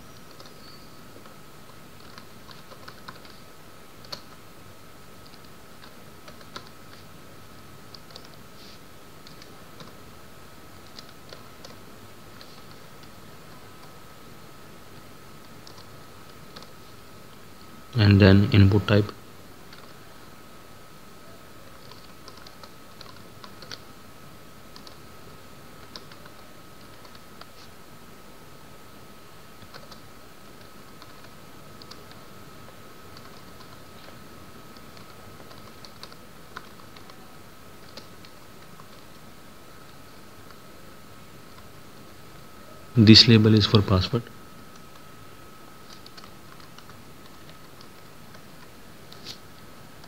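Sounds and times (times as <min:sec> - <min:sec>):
faint high tone and hiss: 0:00.0 - 0:02.5, 0:23.7 - 0:47.2
computer keyboard keystrokes: 0:00.2 - 0:00.6, 0:02.0 - 0:03.4, 0:04.0 - 0:04.4, 0:05.2 - 0:07.0, 0:07.9 - 0:08.4, 0:09.2 - 0:10.0, 0:10.8 - 0:11.8, 0:15.4 - 0:15.9, 0:16.5 - 0:16.7, 0:19.7 - 0:20.0, 0:21.8 - 0:23.9, 0:24.7 - 0:25.0, 0:25.8 - 0:27.5, 0:29.6 - 0:37.2, 0:37.8 - 0:39.2, 0:45.8 - 0:49.3.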